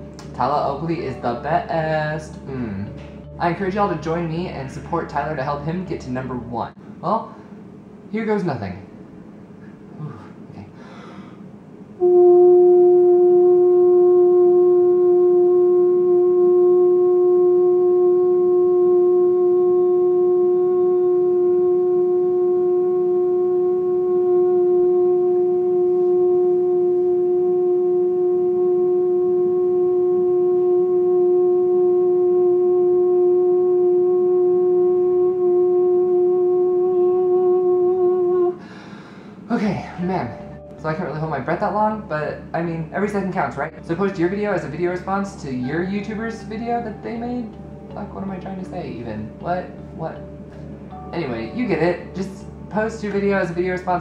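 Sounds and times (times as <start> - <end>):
man singing long note: 12.0 - 38.7.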